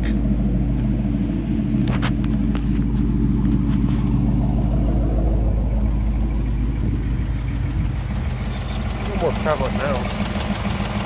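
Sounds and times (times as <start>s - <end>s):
car engine idling: 0.0s - 11.0s.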